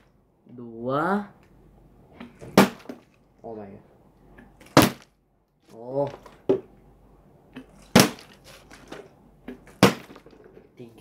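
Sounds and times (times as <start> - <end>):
plastic bottle smacking floor: 2.2 - 3.2, 4.5 - 5.2, 7.6 - 10.7.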